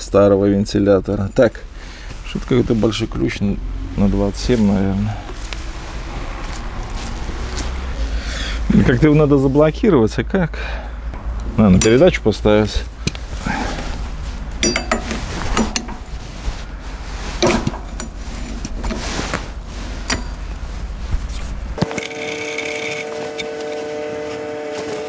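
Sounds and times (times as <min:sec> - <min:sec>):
steady low rumble: 0:00.0 - 0:21.8
wrench and metal parts clinking: 0:11.7 - 0:12.3, 0:14.6 - 0:16.1, 0:20.0 - 0:20.6.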